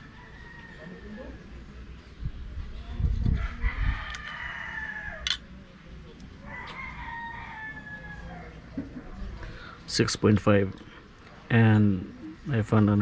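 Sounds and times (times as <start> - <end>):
rooster crowing: 0.0 - 1.4, 3.4 - 5.4, 6.4 - 8.6.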